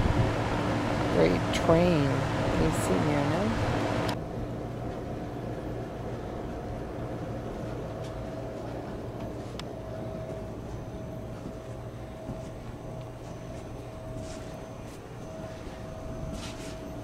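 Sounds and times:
air conditioner humming: 0.0s - 17.0s.

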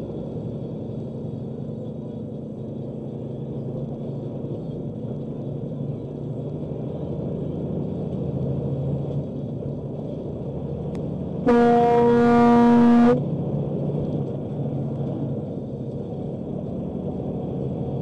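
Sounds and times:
truck engine and road rumble: 0.0s - 18.0s
truck horn blast: 11.5s - 13.2s.

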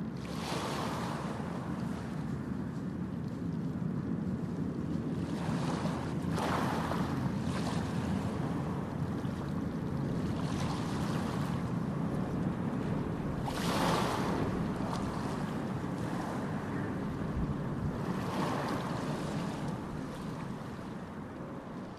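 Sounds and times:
wind buffeting microphone: 0.0s - 21.9s
ship engines rumbling: 11.5s - 21.9s.

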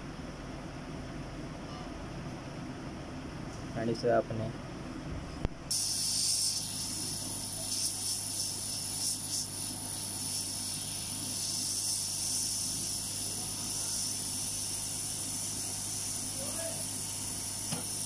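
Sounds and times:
hot air hissing: 5.7s - 18.0s.

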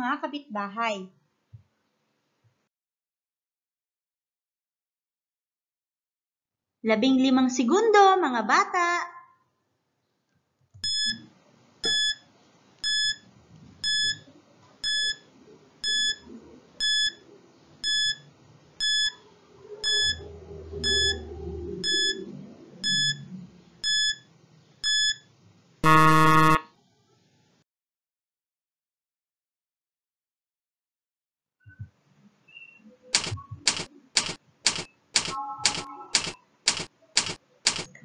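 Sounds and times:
short electronic beeps: 10.8s - 11.2s, 11.8s - 12.2s, 13.8s - 14.2s, 14.8s - 16.2s, 18.8s - 19.2s, 19.8s - 20.2s, 20.8s - 21.2s, 21.8s - 22.2s, 22.8s - 24.2s, 24.8s - 25.2s
harsh buzzer: 20.8s - 21.2s, 25.8s - 26.7s.

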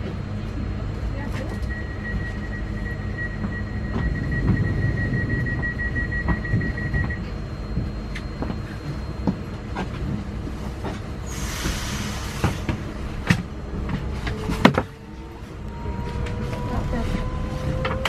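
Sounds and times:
low steady rumble: 0.0s - 11.3s
high beeping tone: 1.5s - 9.1s.

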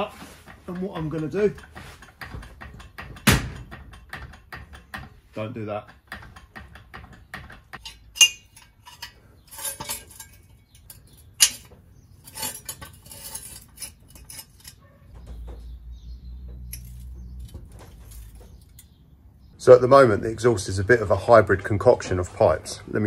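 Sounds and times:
metallic clinks and scrapes: 0.0s - 5.2s, 5.9s - 15.6s, 16.6s - 19.0s
sharp metal clanks: 0.0s - 15.7s, 16.6s - 19.0s.

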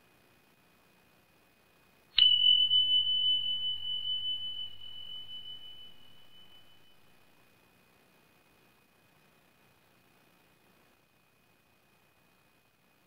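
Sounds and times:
sharp ringing ding: 2.2s - 7.2s.

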